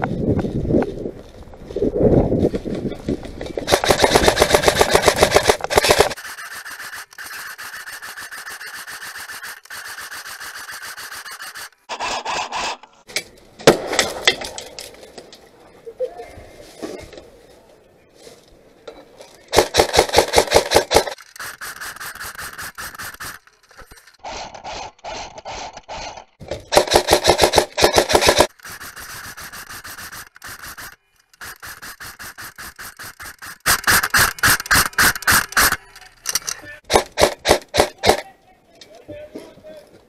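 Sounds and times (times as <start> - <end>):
airsoft rifle bursts: 3.7 - 11.8, 26.7 - 38.2.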